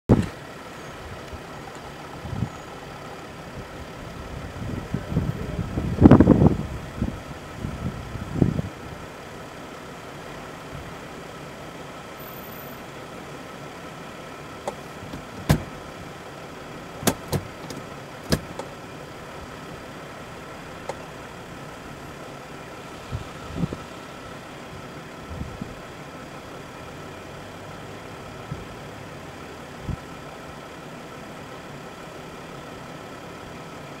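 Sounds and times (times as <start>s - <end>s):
vehicle engine idling: 0.1s - 34.0s
short sharp knocks: 17.0s - 18.7s.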